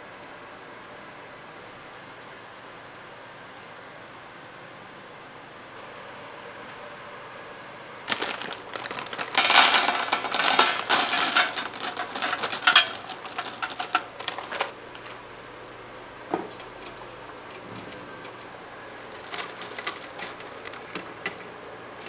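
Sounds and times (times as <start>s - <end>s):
chocolate wafers clattering on metal: 8.1s - 14.7s, 19.0s - 21.4s.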